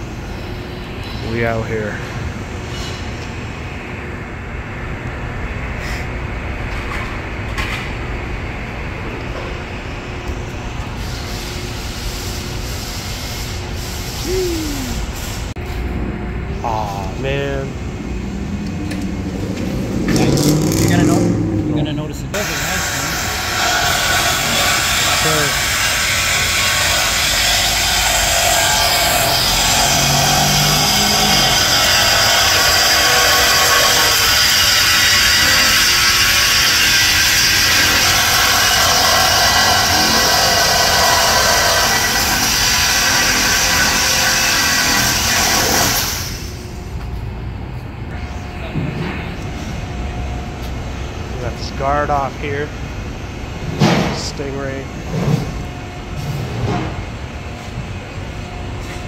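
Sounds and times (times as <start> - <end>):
workshop hum: 0.0 - 59.0
power tool hissing: 22.4 - 46.5.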